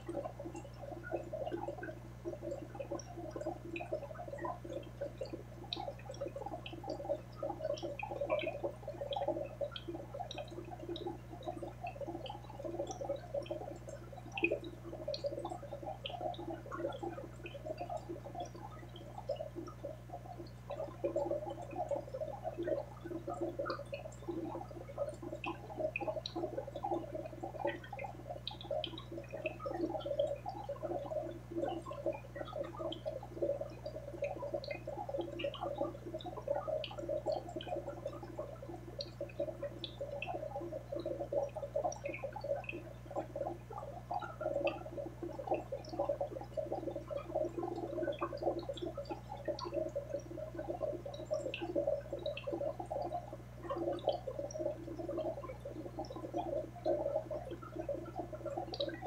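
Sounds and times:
aquarium water bubbling: 0.0 - 59.0.

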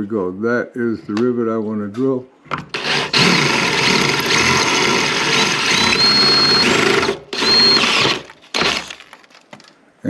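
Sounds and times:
power drill drilling metal: 2.7 - 9.0
drill bit squealing on metal: 2.8 - 8.9.

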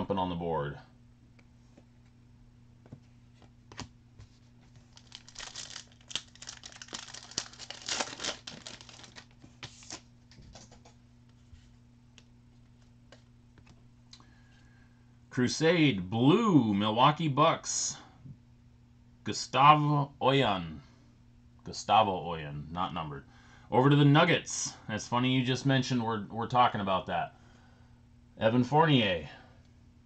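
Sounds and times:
foil wrapper crinkling and tearing: 4.8 - 10.1.

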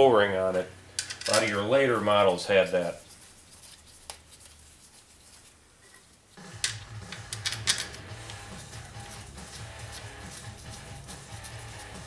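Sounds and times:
background music: 6.4 - 12.0
metal bolts clicking: 6.6 - 8.0.

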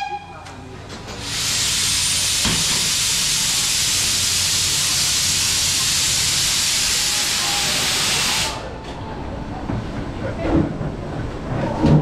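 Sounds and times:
steam locomotive hissing: 1.0 - 8.7.

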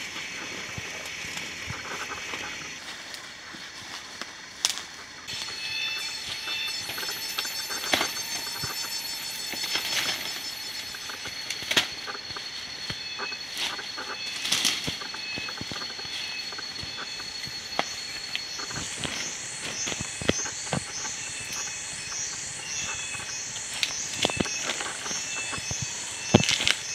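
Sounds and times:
steady high-pitched tone: 0.0 - 4.2, 4.8 - 26.9
leaves rustling: 0.0 - 26.9
high rising call: 5.3 - 25.6.

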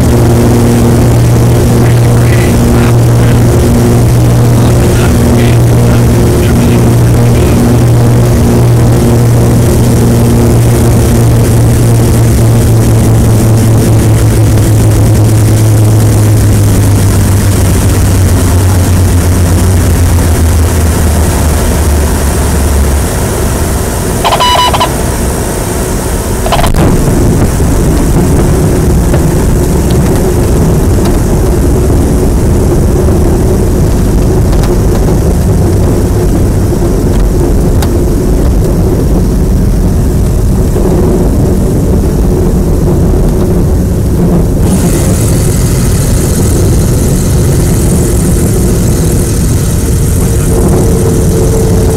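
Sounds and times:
light airplane engine drone: 0.0 - 51.9
brief high tone: 24.2 - 25.1, 26.4 - 26.8, 50.2 - 51.9.

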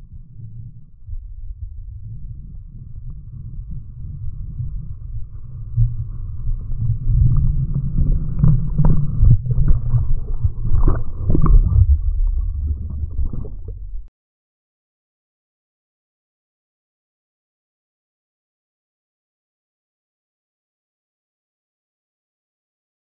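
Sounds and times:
muffled rushing whitewater: 0.0 - 14.1
water splashing on camera: 5.8 - 14.1.

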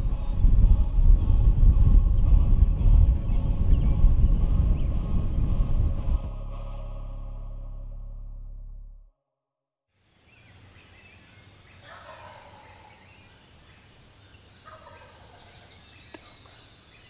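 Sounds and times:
wild turkey gobbling: 11.8 - 13.1, 14.6 - 16.6.

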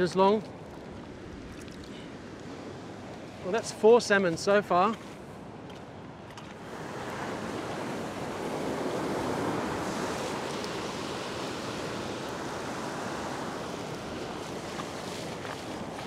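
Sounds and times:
ocean surf washing over rocks: 6.6 - 16.0.

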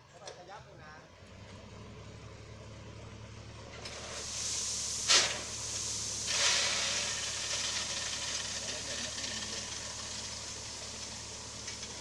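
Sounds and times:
truck engine humming: 1.2 - 12.0
hydraulic hissing: 4.0 - 9.8.

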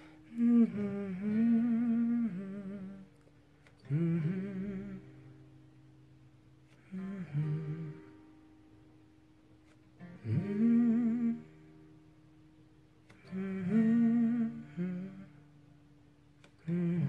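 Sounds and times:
man humming a melody: 0.0 - 3.1, 3.8 - 5.3, 6.8 - 8.2, 10.2 - 11.6, 13.1 - 15.4, 16.6 - 17.0
acoustic guitar chords: 0.0 - 17.0.

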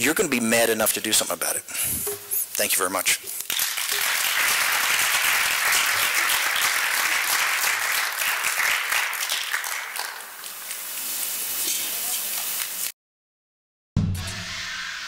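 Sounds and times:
audience applauding: 3.5 - 10.8.

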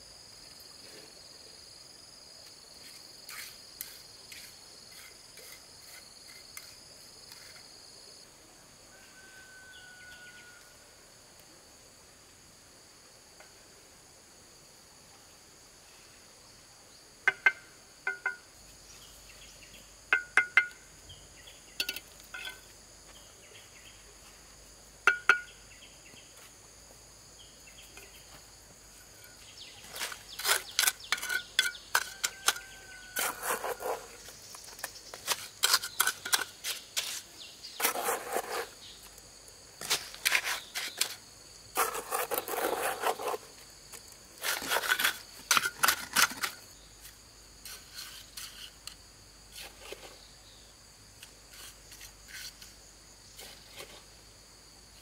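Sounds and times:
insects chirring: 0.0 - 55.0
trowel scraping and slapping mortar: 2.8 - 7.7, 29.0 - 39.1, 39.8 - 43.6, 44.4 - 50.2, 51.2 - 52.8
stone and trowel clinking: 17.3 - 18.5, 20.1 - 20.8, 21.8 - 22.7, 25.1 - 25.5, 29.0 - 38.8, 44.4 - 46.7.

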